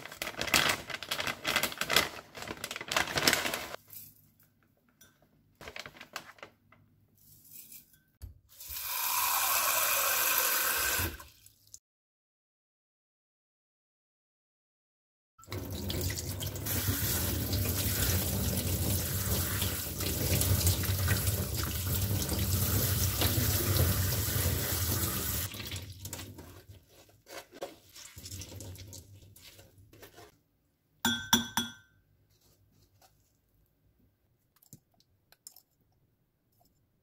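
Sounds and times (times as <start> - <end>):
tap water running hard: 8.6 - 11.2, 15.5 - 26.2
water dripping and splashing: 15.5 - 26.3, 27.9 - 29.3.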